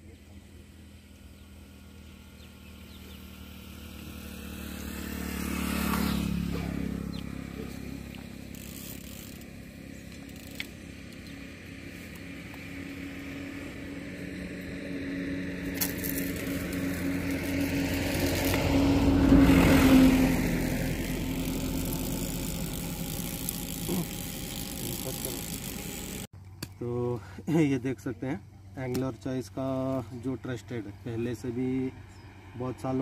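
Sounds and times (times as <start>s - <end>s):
motor engine humming: 0.0s - 26.3s.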